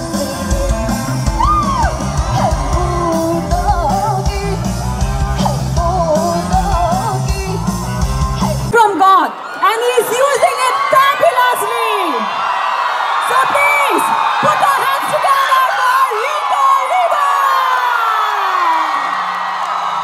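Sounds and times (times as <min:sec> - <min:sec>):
person singing: 0:00.0 - 0:08.7
live rock band playing: 0:00.0 - 0:08.8.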